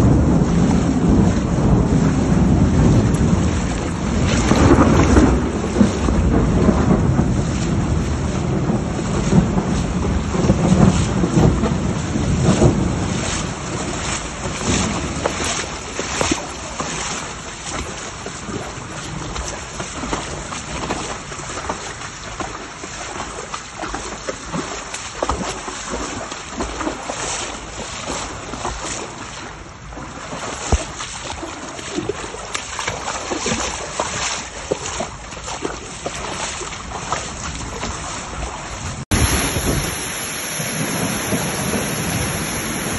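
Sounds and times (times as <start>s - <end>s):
low rumble of thunder: 0.0s - 22.7s, 34.9s - 42.9s
heavy rain pattering: 0.0s - 42.9s
water rushing along street: 0.0s - 42.9s
wind buffeting microphone: 0.0s - 42.9s.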